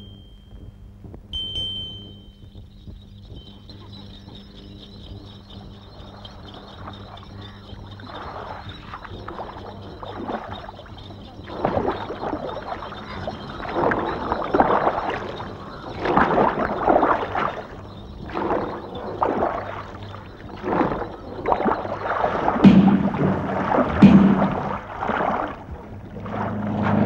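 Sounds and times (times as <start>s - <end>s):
water sloshing: 6.7s - 27.0s.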